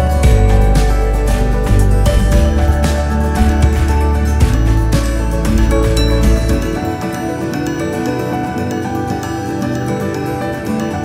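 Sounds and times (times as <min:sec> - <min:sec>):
calm background music: 0:00.0 - 0:11.0.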